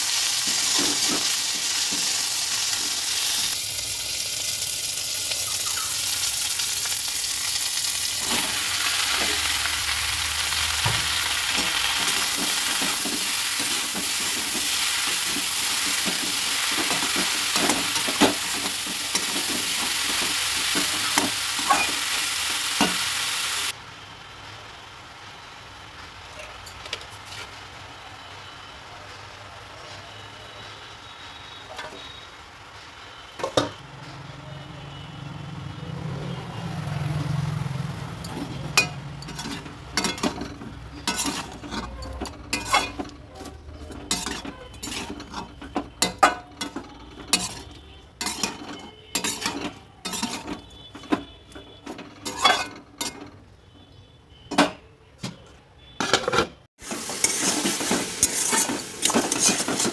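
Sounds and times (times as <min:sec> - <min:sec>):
frying sizzle: 0:00.0 - 0:53.6, 0:56.0 - 0:59.9
metal spatula scraping a pan: 0:10.5 - 0:23.1, 0:38.2 - 0:53.3, 0:56.0 - 0:59.9.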